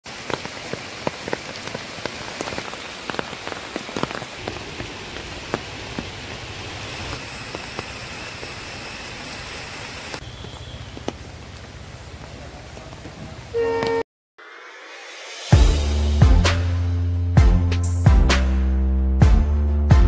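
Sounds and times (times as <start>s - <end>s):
rain falling: 0.0s - 14.0s
high-pitched whine: 6.6s - 10.2s.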